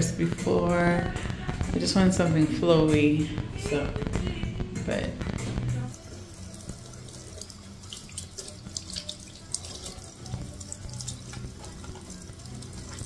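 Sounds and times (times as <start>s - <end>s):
tap running into sink: 6.6s - 13.0s.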